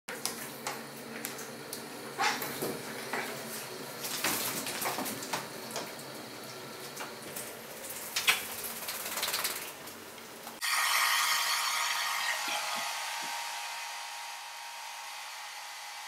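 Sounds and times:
hair dryer running: 10.6 - 16.0.

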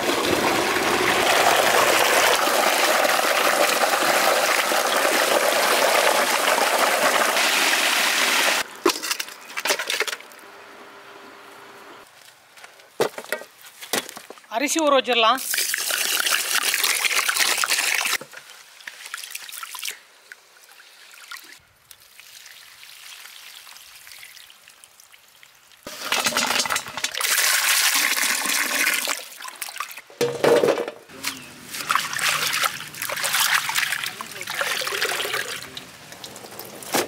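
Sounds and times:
water splashing and sloshing: 15.4 - 37.0
water pouring into metal bowl: 31.9 - 35.8.

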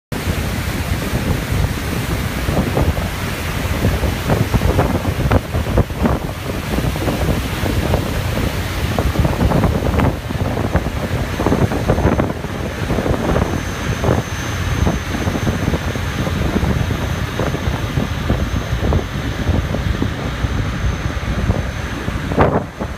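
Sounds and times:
low rumble of vessel and water: 0.1 - 22.9
wind buffeting microphone: 0.1 - 22.9.

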